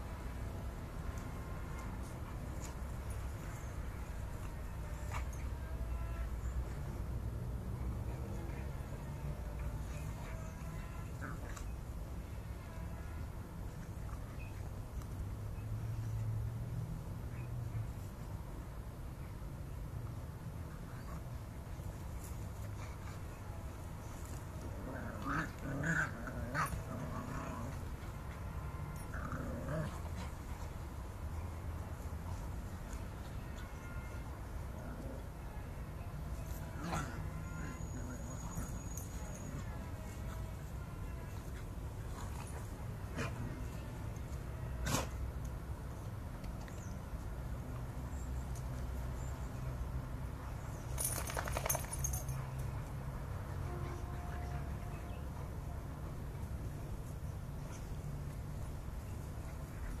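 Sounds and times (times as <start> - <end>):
light metallic jingling: 50.8 - 53.0.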